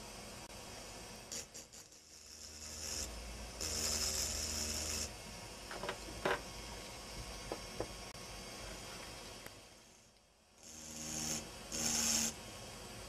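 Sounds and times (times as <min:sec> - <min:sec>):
rotary drill motor hum: 0:01.3 - 0:05.1, 0:09.8 - 0:12.4.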